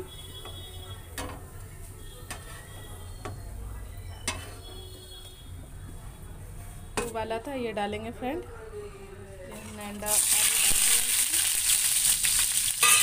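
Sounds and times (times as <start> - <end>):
oil sizzling faintly in a pan: 9.5 - 13.0.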